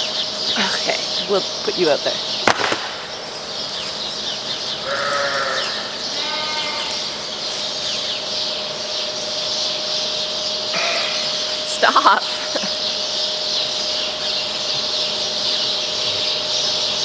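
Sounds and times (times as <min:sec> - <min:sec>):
lambs bleating: 0:04.8 - 0:07.2, 0:10.7 - 0:11.4.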